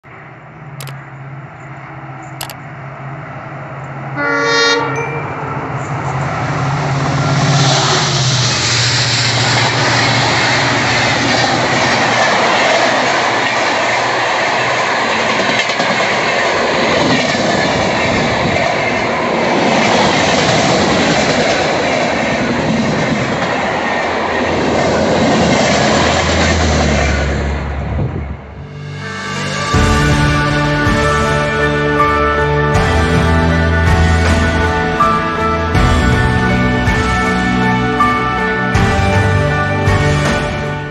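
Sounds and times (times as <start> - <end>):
diesel locomotive engine drone: 0.0 - 40.9
train horn blast: 4.1 - 6.3, 28.5 - 40.9
train wheels on rails: 5.0 - 28.4.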